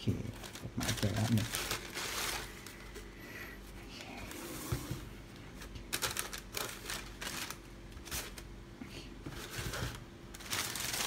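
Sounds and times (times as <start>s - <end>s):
tissue paper crinkling: 0.0s - 2.9s, 5.6s - 8.5s, 9.4s - 11.0s.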